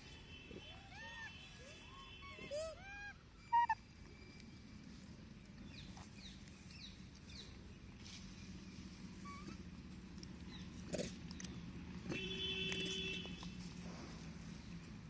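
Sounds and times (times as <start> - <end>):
macaques cooing: 0.5 - 3.8
macaques sharp calls: 0.5 - 3.8.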